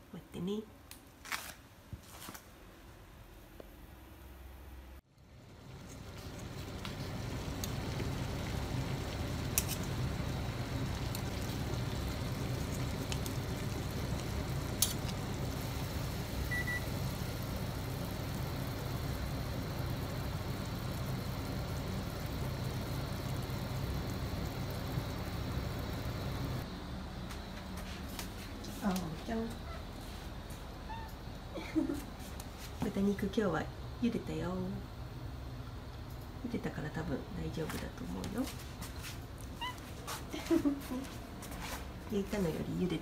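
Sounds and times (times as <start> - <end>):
water boiling in a pot: 5.1 - 26.8.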